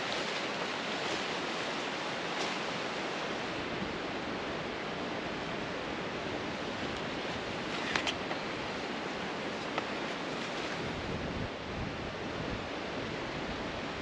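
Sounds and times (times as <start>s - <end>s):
water rushing hiss: 0.0s - 11.2s.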